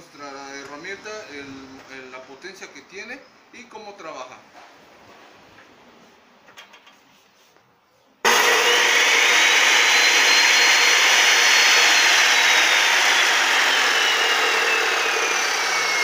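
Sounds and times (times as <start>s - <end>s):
cut-off saw motor whine: 8.2s - 16.0s.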